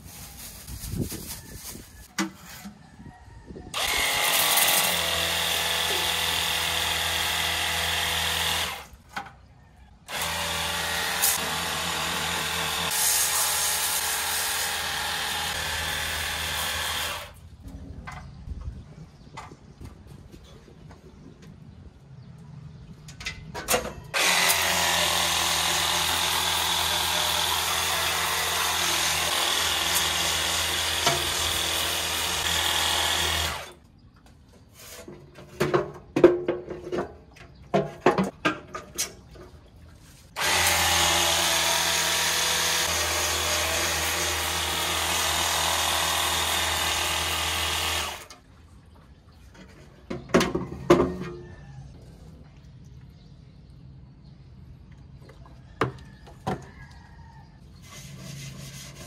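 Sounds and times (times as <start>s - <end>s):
small electric motor running: 3.8s - 8.9s, 10.1s - 17.4s, 24.2s - 33.7s, 40.4s - 48.3s.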